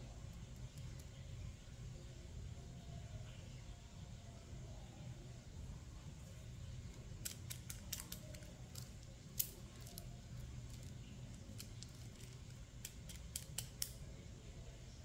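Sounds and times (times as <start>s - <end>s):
plastic beads clicking: 7.2s - 14.0s.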